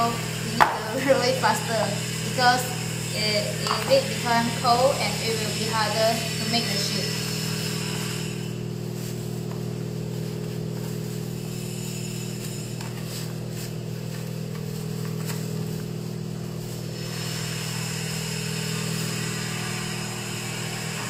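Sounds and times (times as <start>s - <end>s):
low mechanical hum: 0.0s - 21.0s
baking paper crinkling: 8.7s - 17.1s.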